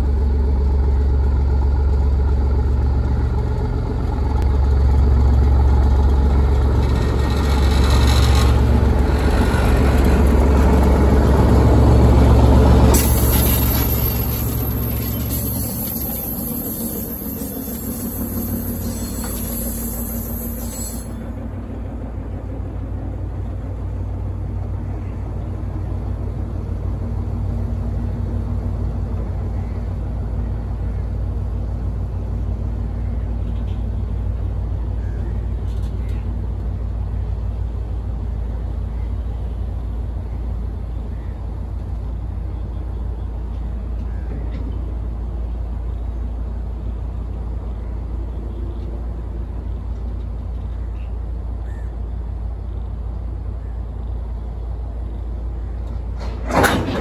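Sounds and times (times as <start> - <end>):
diesel locomotive running: 0.0 - 57.0
freight wagons rolling on rails: 2.4 - 26.6, 55.8 - 57.0.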